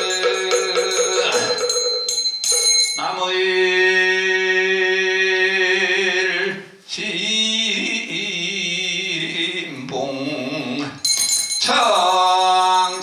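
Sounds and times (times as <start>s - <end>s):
monk chanting: 0.0s - 1.7s, 3.0s - 11.0s.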